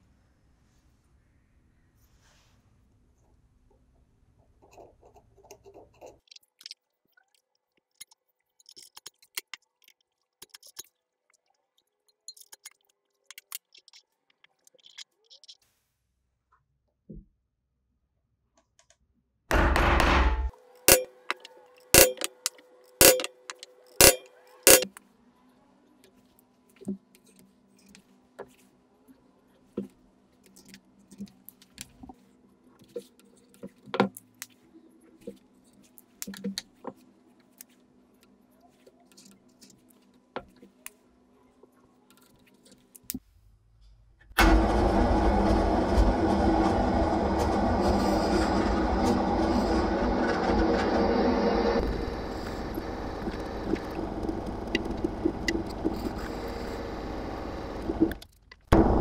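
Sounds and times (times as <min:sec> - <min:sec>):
hammer striking metal punch: 0:19.5 - 0:21.1, 0:22.0 - 0:22.4, 0:23.0 - 0:23.3, 0:24.0 - 0:24.8
drill press motor: 0:44.4 - 0:58.2, 0:58.8 - 0:59.0
low hum: 0:44.4 - 0:59.0.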